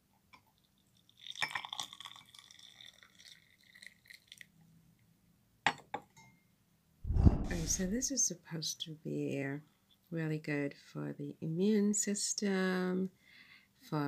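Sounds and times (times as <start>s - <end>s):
hot water pouring into glass mug: 1.0s - 4.5s.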